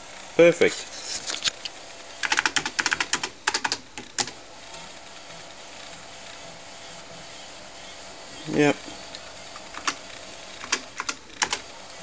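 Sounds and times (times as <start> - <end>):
keyboard keys typing: 2.2 - 4.4, 9.6 - 10.0, 10.6 - 11.6.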